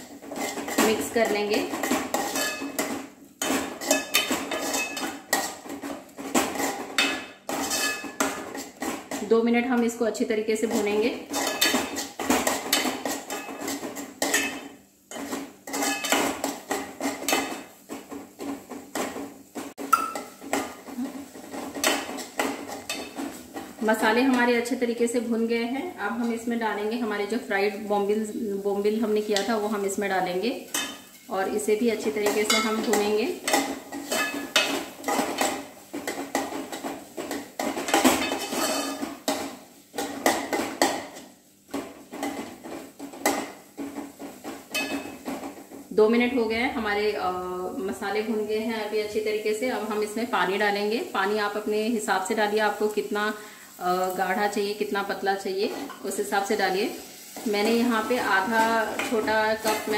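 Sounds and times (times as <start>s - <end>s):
masala frying: 0.0s - 59.9s
spoon scraping a metal pot: 0.1s - 9.4s, 10.6s - 17.7s, 32.2s - 41.2s.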